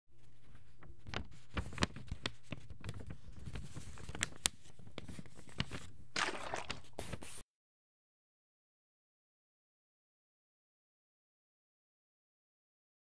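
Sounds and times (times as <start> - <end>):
paper crackling and crinkling: 0.2 - 7.4.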